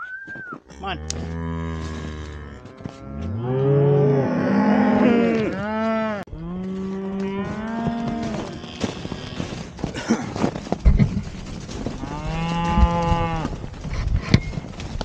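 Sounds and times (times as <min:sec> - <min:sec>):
cows mooing: 0:00.6 - 0:09.8, 0:11.9 - 0:13.6.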